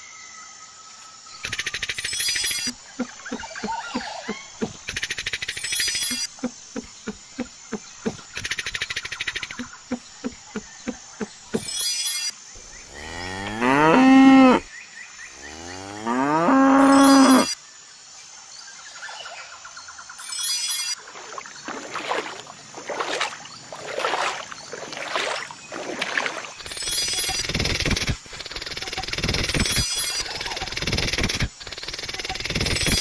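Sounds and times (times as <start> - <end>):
cow mooing: 12.9 - 14.7, 15.4 - 17.5.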